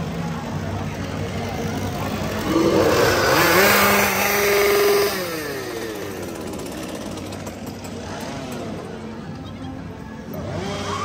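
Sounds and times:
chainsaw revving: 1.8s - 8.8s, 10.4s - 11.0s.

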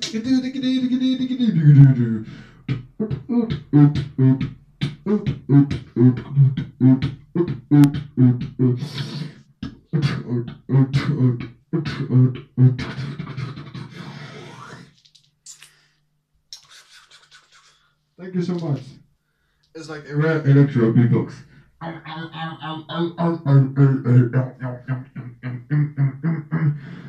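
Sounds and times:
person beatboxing into a microphone: 1.5s - 14.9s, 16.5s - 17.8s, 22.8s - 27.0s.

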